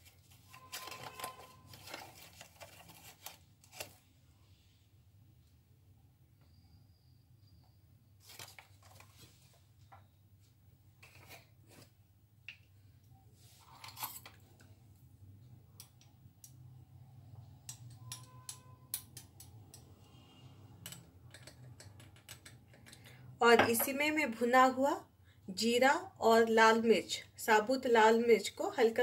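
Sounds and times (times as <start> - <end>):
faint clicks and rustles: 0.0 - 4.0.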